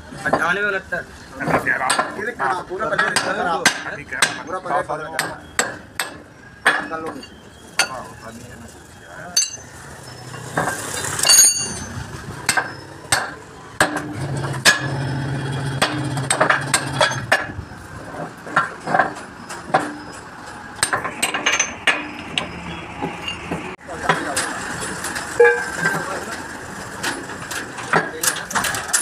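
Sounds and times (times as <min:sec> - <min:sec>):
metal tools clanking on steel: 0:01.9 - 0:08.4, 0:09.2 - 0:29.0.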